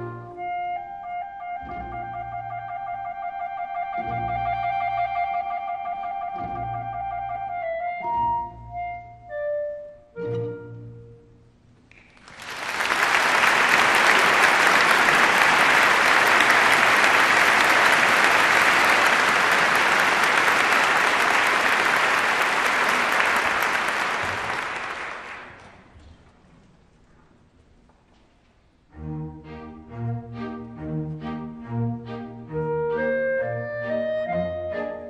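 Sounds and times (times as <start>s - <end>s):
audience applauding: 11.9s - 25.9s.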